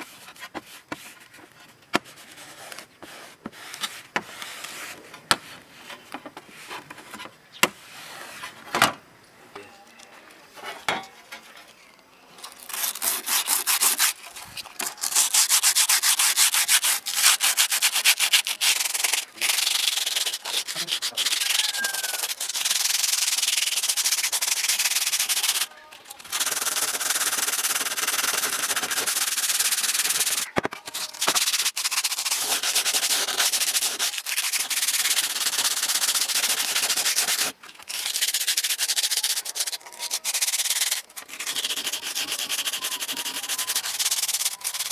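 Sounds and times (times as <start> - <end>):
sandpaper scrubbing saw blade: 12.6 - 14.2, 14.8 - 44.9.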